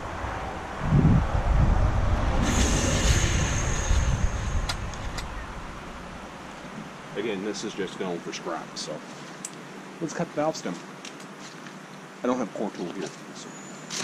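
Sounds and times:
air rushing out of tire: 0.0s - 6.7s.

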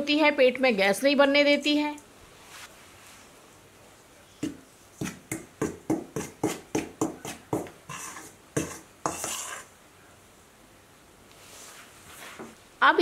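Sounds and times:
spoon scraping bowl: 5.0s - 9.8s.

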